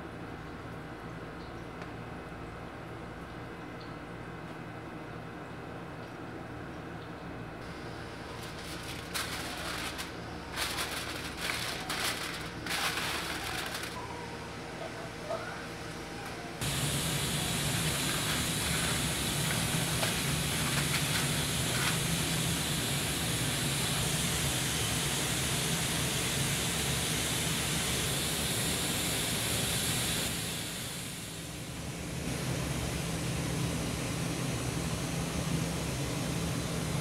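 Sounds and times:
machine hissing and humming: 7.6s - 37.0s.

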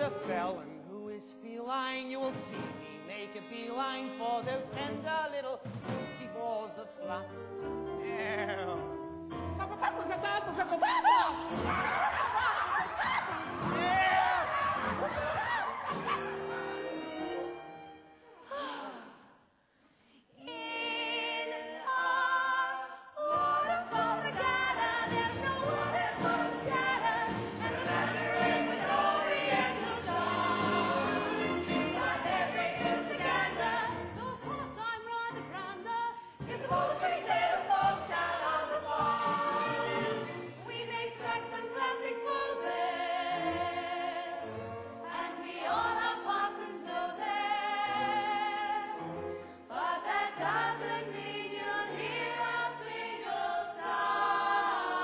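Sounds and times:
cast singing in chorus with music: 20.3s - 55.0s.

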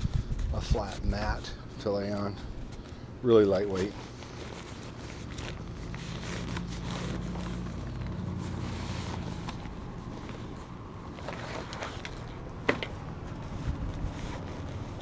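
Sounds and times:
pack and mat rustling: 0.0s - 15.0s
low motor hum: 5.2s - 15.0s.

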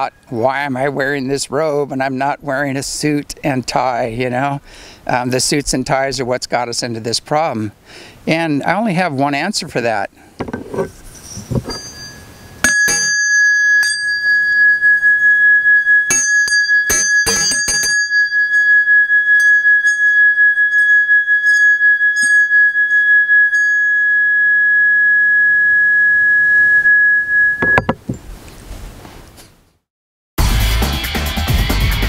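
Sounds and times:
singing bowl ringing: 10.7s - 28.2s.

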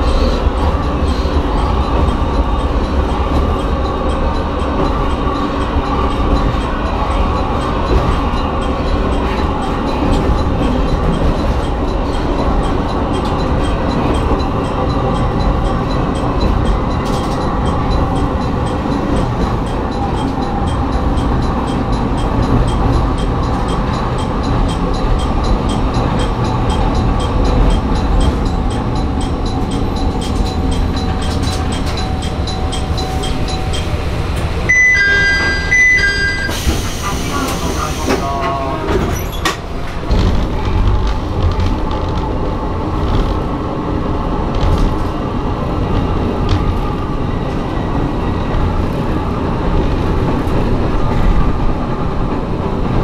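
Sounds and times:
railcar engine and wheel rumble: 0.0s - 53.0s
two-note electronic chime: 34.7s - 36.8s.

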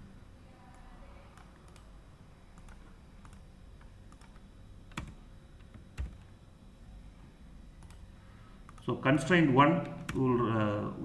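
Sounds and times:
typing on keyboard: 4.1s - 6.3s.

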